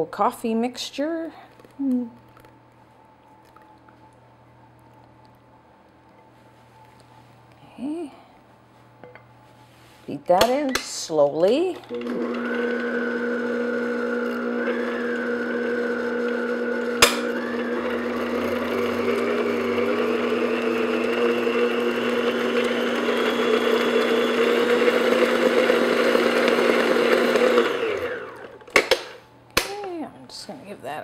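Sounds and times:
stand mixer motor hum: 11.9 - 28.7.

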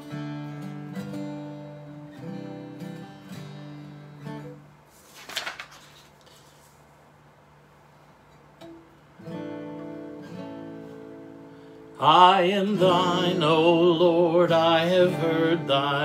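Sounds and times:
acoustic guitar strumming: 0.0 - 4.7, 8.5 - 16.0
paper sheets rustling: 4.8 - 7.0.

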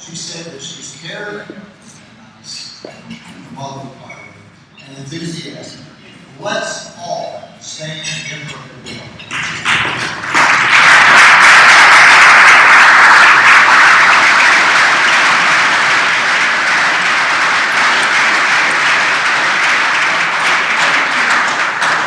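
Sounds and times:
crowd applauding: 9.3 - 22.0.

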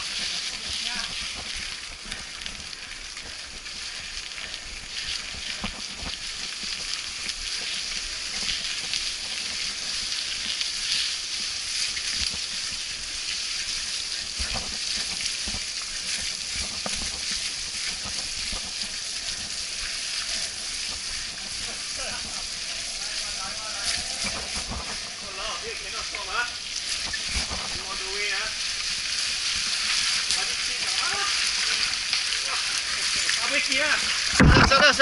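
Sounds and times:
bike rattling over bumps: 0.0 - 28.0
tyres hissing on wet dirt: 0.0 - 35.0
rushing air: 19.2 - 26.0.

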